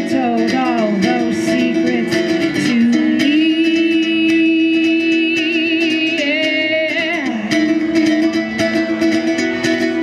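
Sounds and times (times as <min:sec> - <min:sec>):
woman singing: 0:00.0 - 0:08.2
strummed acoustic guitar: 0:00.0 - 0:10.0.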